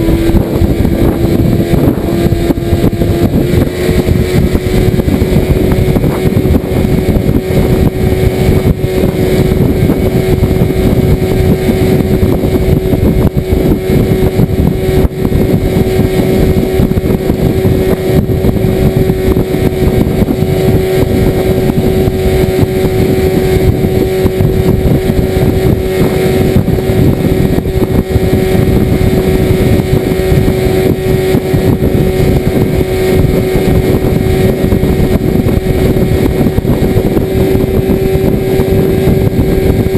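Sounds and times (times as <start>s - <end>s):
outboard motor running: 0.0s - 39.9s.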